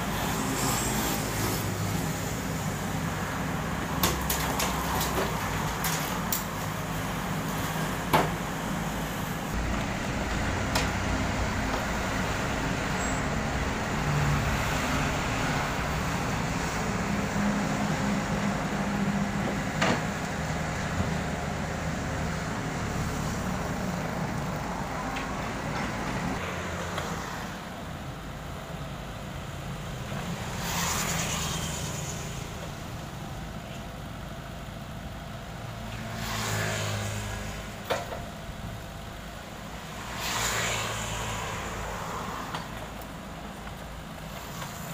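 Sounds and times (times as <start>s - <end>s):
excavator diesel engine running: 2.0s - 26.4s.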